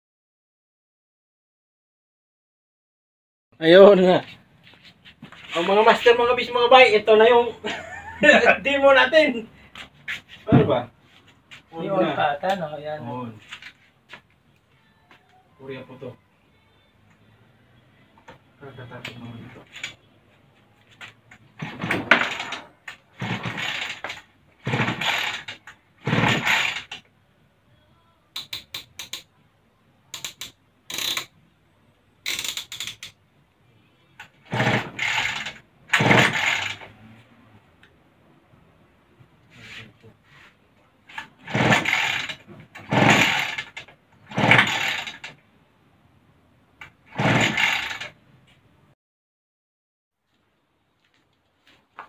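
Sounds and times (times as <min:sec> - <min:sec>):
outboard motor pull-starter cranking: 0:21.6 - 0:27.0, 0:34.5 - 0:36.9, 0:41.1 - 0:45.4, 0:46.8 - 0:48.2.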